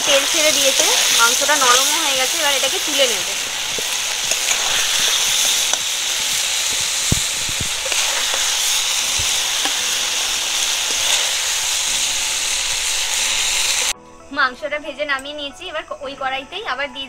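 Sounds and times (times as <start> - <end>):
chicken sizzling in hot oil: 0.0 - 14.0.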